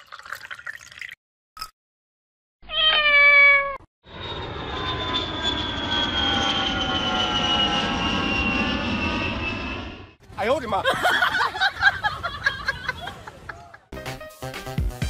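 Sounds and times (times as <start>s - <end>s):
cat meowing: 2.6s - 3.8s
falling whine: 4.1s - 10.2s
airliner cabin drone: 4.1s - 13.8s.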